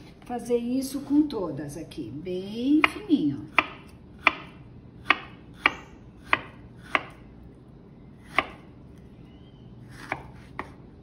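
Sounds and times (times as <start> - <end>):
knife slicing pear: 2.8 - 7.3, 8.2 - 9.1, 9.8 - 10.9.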